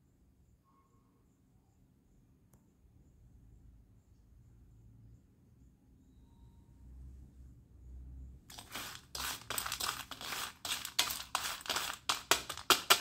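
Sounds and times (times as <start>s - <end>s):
pieces rattling against metal: 8.5s - 13.0s
spoon scraping slate pieces on metal: 8.5s - 13.0s.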